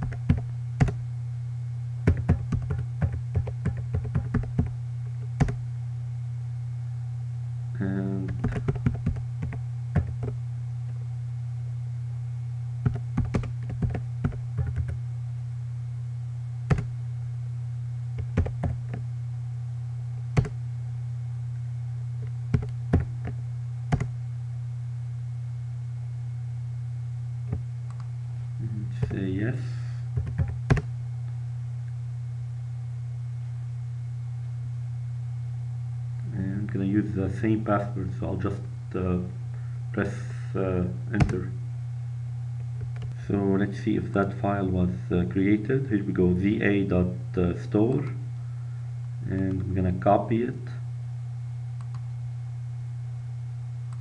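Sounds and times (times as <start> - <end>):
computer keyboard typing: 0.0 - 1.0, 2.1 - 4.7, 5.4 - 5.6, 8.3 - 10.4, 12.9 - 15.0, 18.2 - 19.0, 22.6 - 24.1, 30.2 - 30.9
steady low hum: 0.0 - 54.0.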